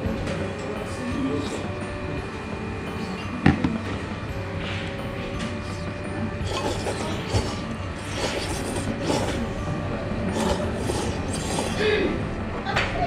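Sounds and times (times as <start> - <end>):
noodles being slurped: 1.3 - 1.7, 6.4 - 9.6, 10.2 - 12.1.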